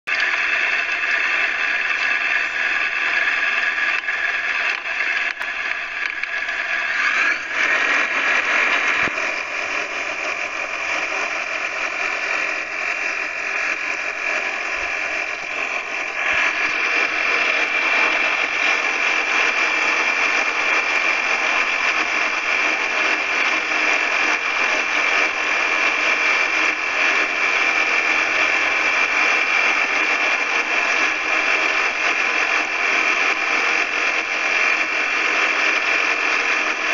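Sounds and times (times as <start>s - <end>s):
aircraft engine and propeller: 2.6s - 36.9s.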